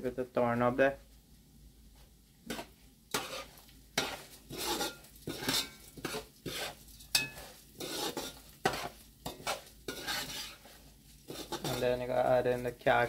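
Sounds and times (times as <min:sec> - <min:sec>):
spoon scraping rice in metal pot: 0:02.5 - 0:12.9
spoon clinking against pot: 0:07.1 - 0:10.1.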